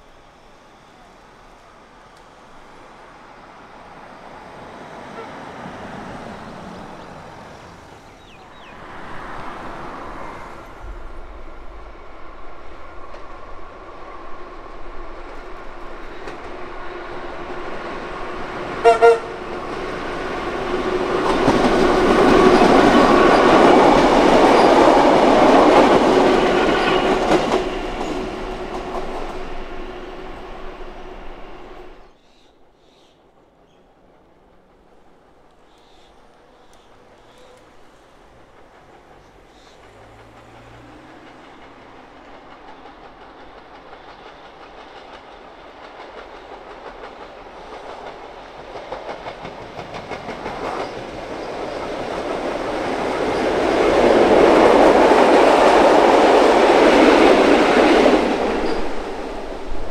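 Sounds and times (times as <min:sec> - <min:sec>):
electric train passing: 0:00.0 - 0:32.2, 0:33.2 - 0:59.9
train horn toot: 0:05.0 - 0:05.7, 0:18.8 - 0:19.6.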